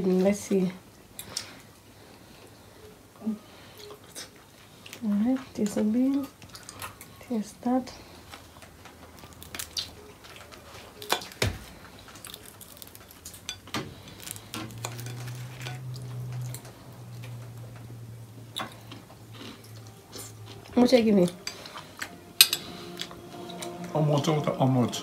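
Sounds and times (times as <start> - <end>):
low steady hum: 1.8 - 25.0
cutlery clinking on a plate: 14.7 - 16.0, 22.4 - 22.6.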